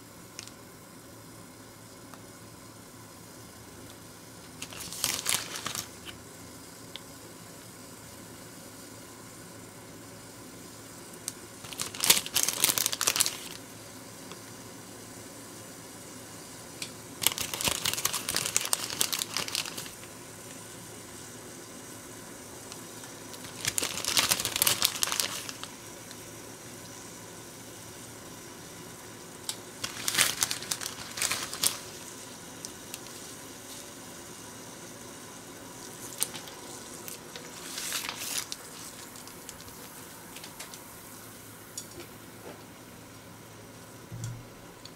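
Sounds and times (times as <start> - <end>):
faint steady hiss: 0.0 - 44.9
plastic bag crinkling: 4.4 - 6.2, 11.6 - 13.6, 17.2 - 20.1, 22.7 - 25.8, 29.6 - 34.0, 35.8 - 40.8.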